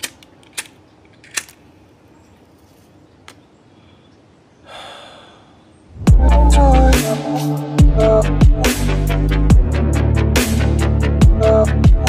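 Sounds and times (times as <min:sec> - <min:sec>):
sharp clicks: 0:00.0 - 0:01.6.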